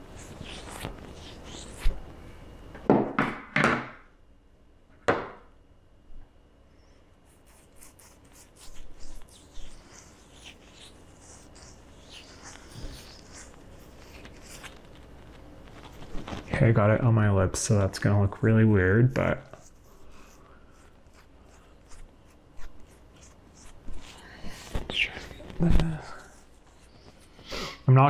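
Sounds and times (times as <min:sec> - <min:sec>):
fingers rubbing skin near microphone: 0:00.0 - 0:02.0, 0:07.3 - 0:16.7, 0:19.2 - 0:27.5.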